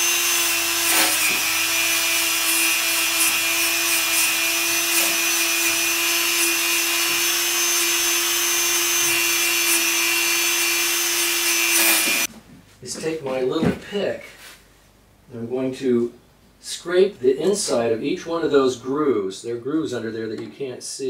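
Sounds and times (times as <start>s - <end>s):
rotary tool whining: 0.0s - 12.3s.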